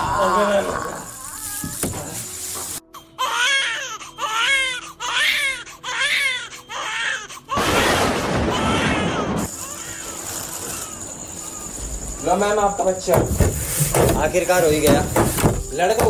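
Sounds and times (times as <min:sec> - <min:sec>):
newborn baby crying: 0:02.8 - 0:13.0.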